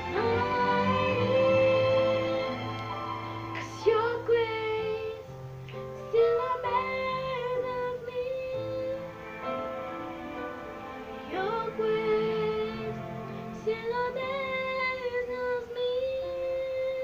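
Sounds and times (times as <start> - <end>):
woman singing worship song: 0.0 - 2.6, 3.6 - 5.3, 6.1 - 9.2, 11.3 - 17.0
held instrumental chords: 0.0 - 15.0.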